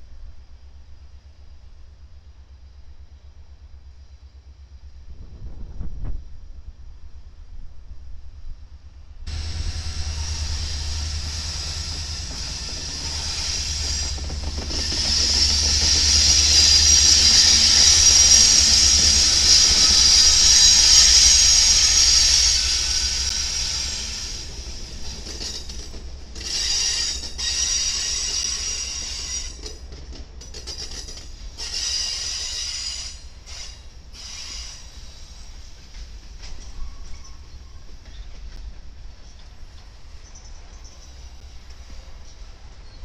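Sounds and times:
freight train rumble: 0:00.0 - 0:43.0
train wheels squealing on rails: 0:09.3 - 0:43.0.

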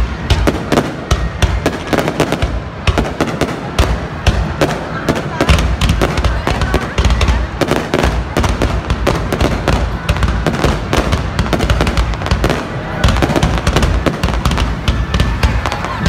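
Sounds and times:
fireworks bursting: 0:00.0 - 0:16.0.

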